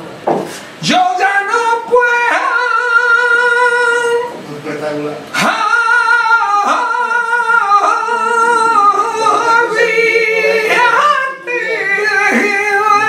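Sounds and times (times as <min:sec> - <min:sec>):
singer breath: 0:00.4 - 0:00.8
man singing unaccompanied: 0:00.8 - 0:04.5, 0:05.3 - 0:13.0.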